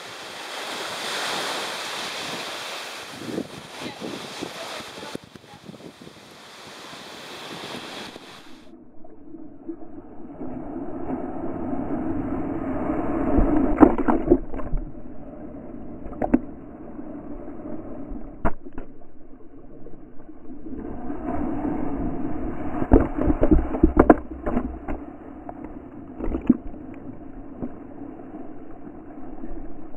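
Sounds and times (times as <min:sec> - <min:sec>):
small waves breaking: 0:00.0 - 0:08.7
water knocking against camera: 0:22.9 - 0:25.0, 0:26.2 - 0:26.8.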